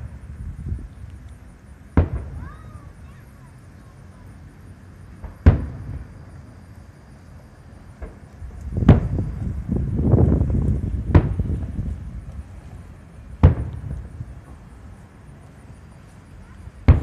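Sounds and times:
rumble of smaller bangs: 1.9s - 2.7s, 7.9s - 14.8s, 16.7s - 17.0s
firework shells booming: 1.9s - 3.2s, 5.2s - 6.4s, 7.9s - 12.3s, 13.4s - 14.7s, 16.7s - 17.0s.

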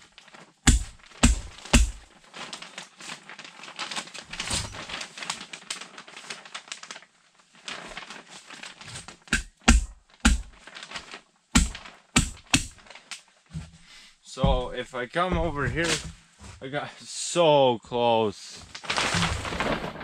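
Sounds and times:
plastic sheeting crinkling: 0.0s - 16.6s, 18.5s - 20.0s
hammer nailing: 0.7s - 2.0s, 9.3s - 10.6s, 11.6s - 12.8s.

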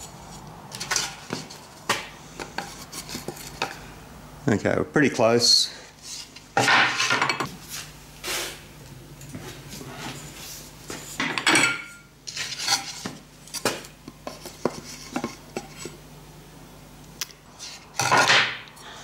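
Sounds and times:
metal clanks and scrapes: 11.2s - 13.6s.

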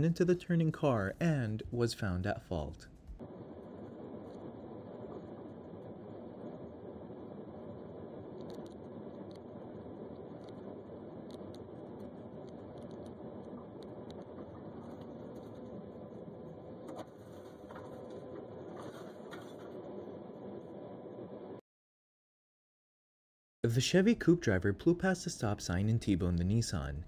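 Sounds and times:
scattered clicks and ticks: 7.7s - 17.1s.

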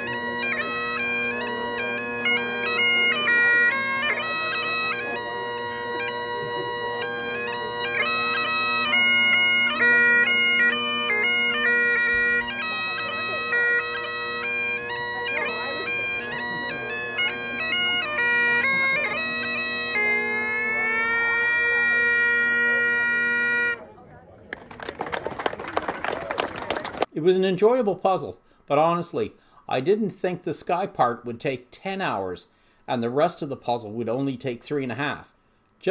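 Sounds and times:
bagpipes playing: 0.0s - 23.8s.

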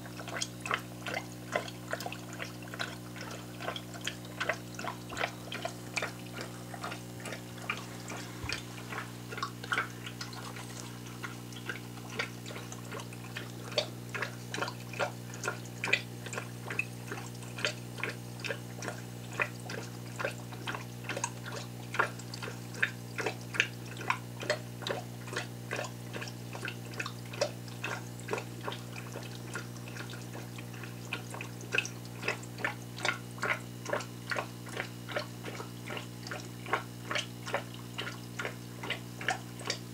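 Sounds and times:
aquarium bubbler popping: 0.0s - 39.9s
steady low hum: 0.1s - 20.5s.

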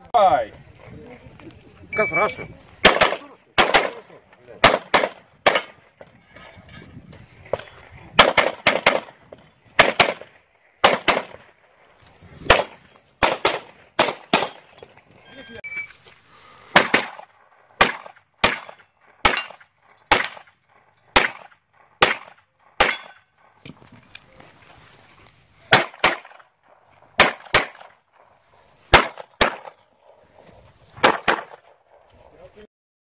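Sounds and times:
pistol shots: 2.8s - 5.8s, 8.2s - 9.2s, 9.8s - 11.5s, 12.4s - 14.8s, 16.7s - 23.3s, 25.7s - 26.5s, 27.2s - 28.0s, 28.9s - 29.8s, 31.0s - 31.8s.

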